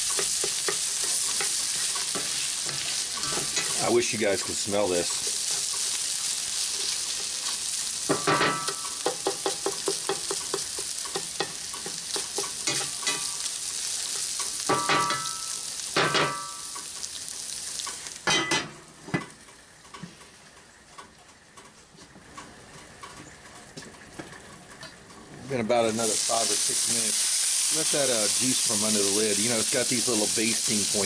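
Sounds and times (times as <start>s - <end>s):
spatula scraping and knocking pan: 0.0s - 3.8s, 8.1s - 13.3s
food sizzling in a skillet: 0.0s - 18.5s, 25.7s - 31.0s.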